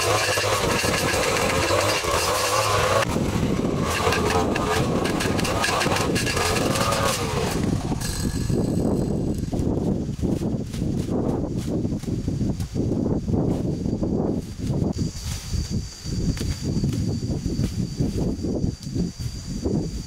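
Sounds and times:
small engine running: 0.0 - 11.1.

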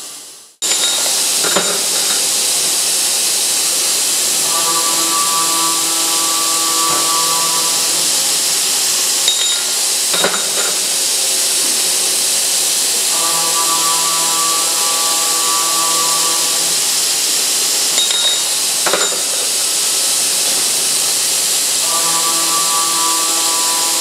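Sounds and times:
ringing hum: 0.6 - 12.2, 12.8 - 20.0
circular saw cutting steel: 0.6 - 24.0.

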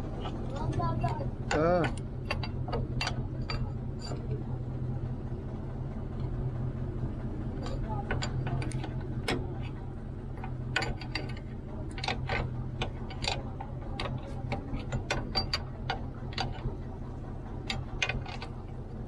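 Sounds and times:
low hum: 0.0 - 19.0
ratcheting wrench clicking: 10.4 - 16.6.

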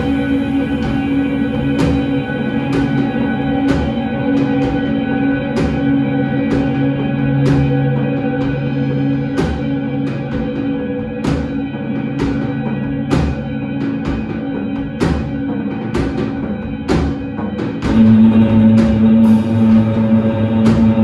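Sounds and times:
cymbal crashes: 17.8 - 21.0.

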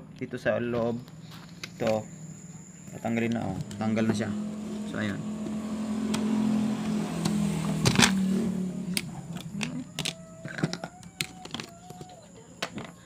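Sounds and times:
low steady hum: 0.0 - 13.0
screwdriver and plastic parts clicking: 9.0 - 13.0.

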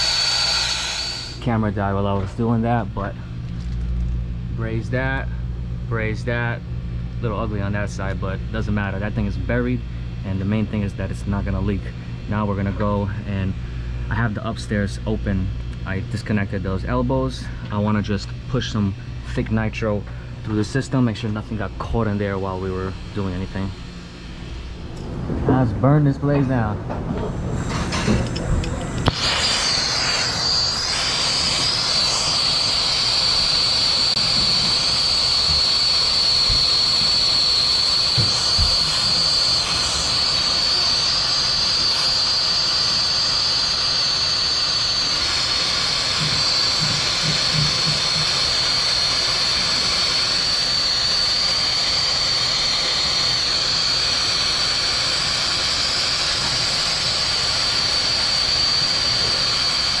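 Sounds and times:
high whistle: 0.0 - 1.4, 29.0 - 60.0
brazing torch hissing: 0.0 - 1.6, 27.2 - 60.0.

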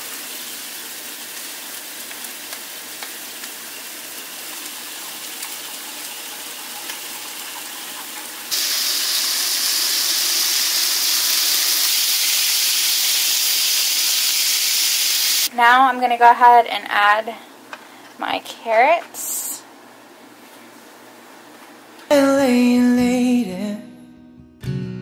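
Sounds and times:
chicken sizzling in a skillet: 0.0 - 15.5.

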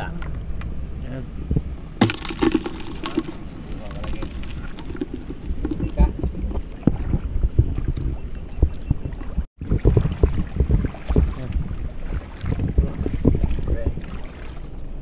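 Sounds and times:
wind buffeting microphone: 3.1 - 15.0
footsteps splashing through water: 9.7 - 14.7.

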